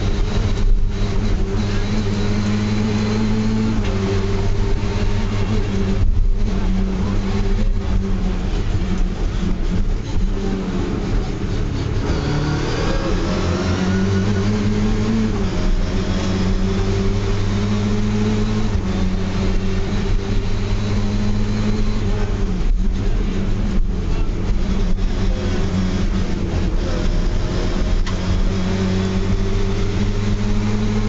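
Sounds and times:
rally car engine revving high: 0.0s - 31.0s.

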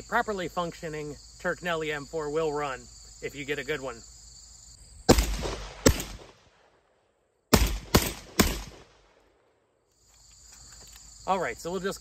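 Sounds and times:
shotgun shots: 5.1s - 6.8s, 7.5s - 9.2s.

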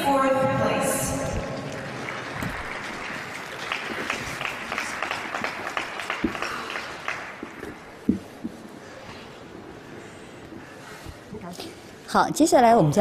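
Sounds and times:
people clapping: 1.3s - 8.0s.

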